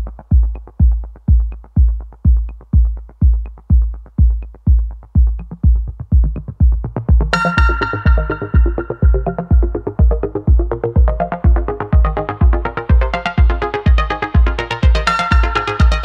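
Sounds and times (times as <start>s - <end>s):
electronic dance music: 0.0s - 16.0s
punchy kick drum: 0.0s - 16.0s
bright synth chords: 7.2s - 16.0s.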